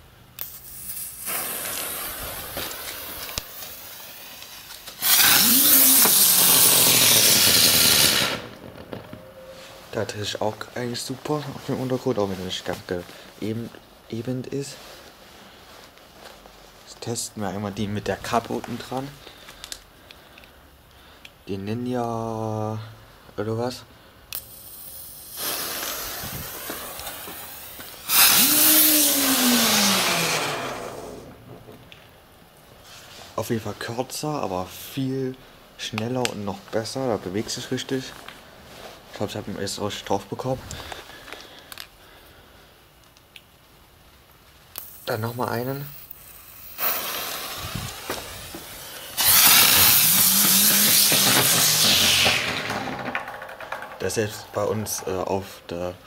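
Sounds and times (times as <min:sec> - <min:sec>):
firework fuse sizzling: 0:00.0 - 0:15.8, 0:24.3 - 0:34.0, 0:43.9 - 0:56.0
ground spinner firework hissing: 0:00.4 - 0:08.9, 0:24.3 - 0:32.1, 0:44.6 - 0:55.8.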